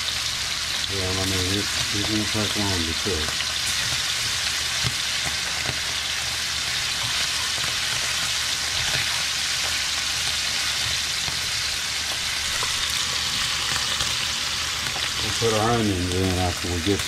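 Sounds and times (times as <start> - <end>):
meat sizzling in a skillet: 0.0 - 17.0.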